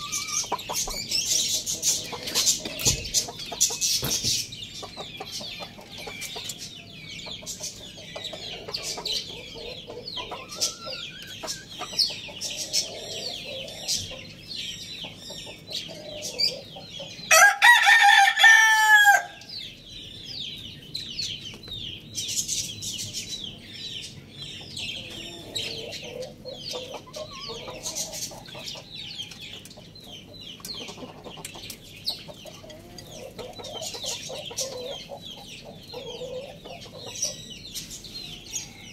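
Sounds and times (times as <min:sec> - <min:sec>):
high chirps chatter: 0:00.0 - 0:17.3, 0:19.4 - 0:38.8
roosters clucking softly: 0:00.0 - 0:17.3, 0:23.5 - 0:38.9
rooster crowing: 0:17.3 - 0:19.4.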